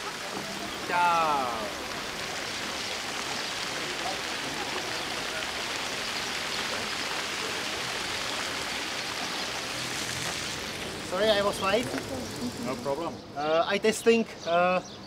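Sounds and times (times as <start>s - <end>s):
faint voices: 3.2s - 9.4s.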